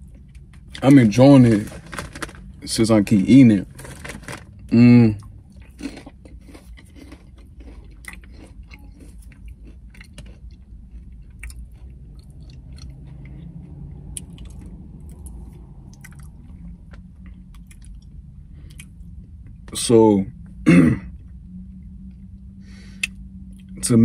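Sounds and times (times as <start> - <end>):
person chewing popcorn: 3.8 - 19.9.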